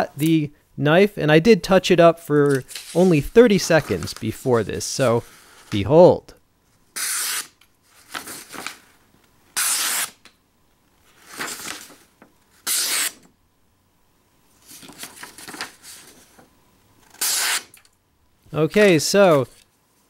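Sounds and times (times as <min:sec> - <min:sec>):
paper crinkling: 0:02.4 - 0:05.3, 0:07.9 - 0:09.0, 0:11.1 - 0:12.3, 0:14.6 - 0:16.5
knife slicing paper: 0:07.0 - 0:08.8, 0:09.6 - 0:10.2, 0:12.6 - 0:13.2, 0:17.1 - 0:17.7.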